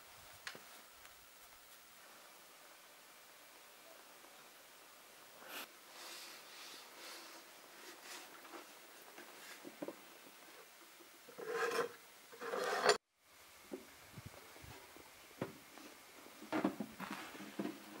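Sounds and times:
wood scraping and rubbing: 11.3 - 13.0.

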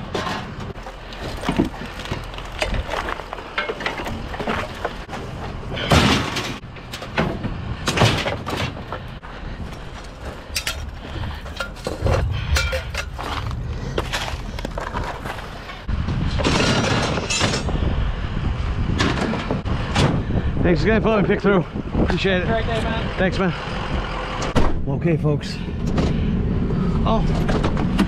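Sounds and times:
scrap metal clanking: 0.1 - 9.1, 10.2 - 17.8.

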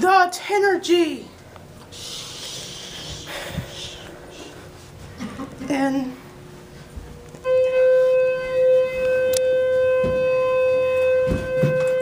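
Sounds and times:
elevator alarm tone: 7.4 - 12.0.

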